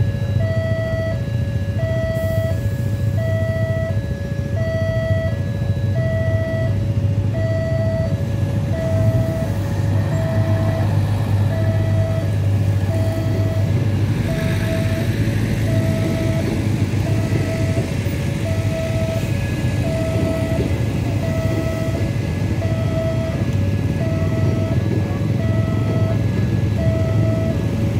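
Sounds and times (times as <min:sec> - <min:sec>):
level-crossing two-tone alarm: 0:00.0 - 0:27.9
train low rumble: 0:00.0 - 0:27.9
wheel and rail noise: 0:08.1 - 0:27.9.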